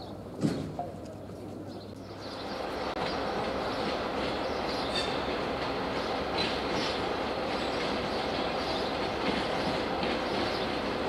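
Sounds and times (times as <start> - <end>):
train running on rails: 0.0 - 11.0.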